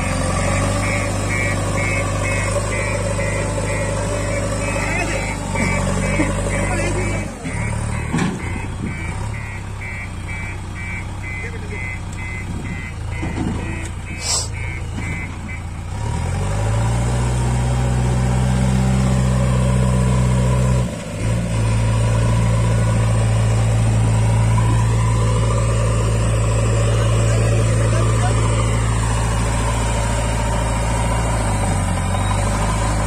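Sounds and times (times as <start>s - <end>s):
reversing alarm beeping: 0.0s - 15.8s
diesel engine revving: 0.0s - 33.0s.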